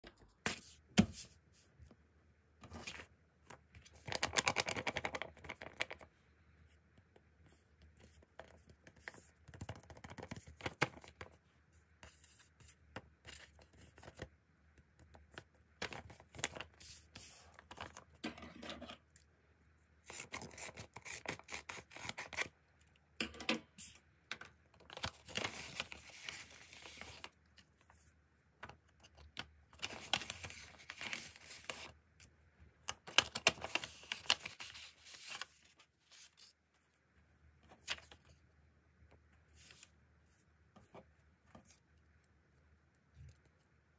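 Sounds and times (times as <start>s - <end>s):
paper rustling and crinkling: 24.8s - 27.9s, 29.1s - 31.9s, 32.9s - 36.6s.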